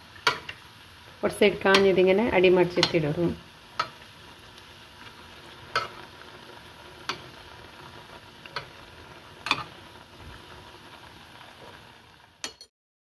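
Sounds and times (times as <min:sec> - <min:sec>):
food sizzling in hot oil: 0:00.0 - 0:12.7
metal spoon clinking on pan: 0:00.2 - 0:00.6, 0:02.8 - 0:03.1, 0:03.8 - 0:04.0, 0:05.7 - 0:06.0, 0:08.5 - 0:08.8, 0:09.4 - 0:09.7, 0:12.4 - 0:12.7.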